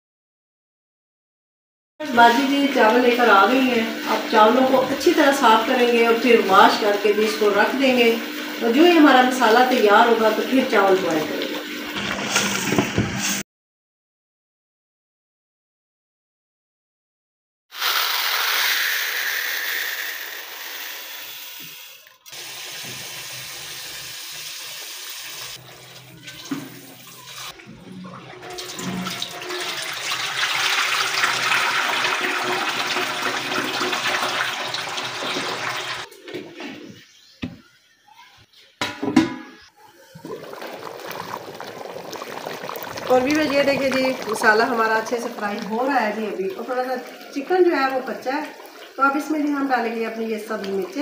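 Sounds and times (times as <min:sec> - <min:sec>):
rice pouring into plastic tub: 0:17.8 - 0:21.5, 0:40.2 - 0:45.7
water splashing into steel sink: 0:25.5 - 0:36.1, 0:40.0 - 0:51.0
water sloshing: 0:40.0 - 0:49.6.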